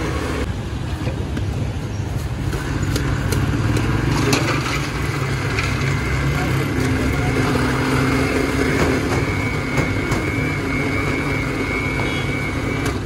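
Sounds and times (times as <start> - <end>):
electric blender running: 4.6 - 13.0.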